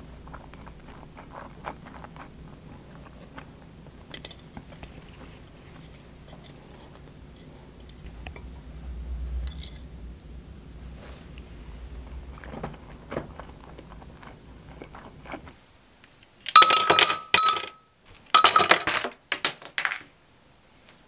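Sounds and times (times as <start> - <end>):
cutlery clinking on bowl: 5.6 - 8.0, 16.5 - 17.8, 18.4 - 19.0
ice cubes clattering into glass: 16.5 - 17.8, 18.4 - 19.2.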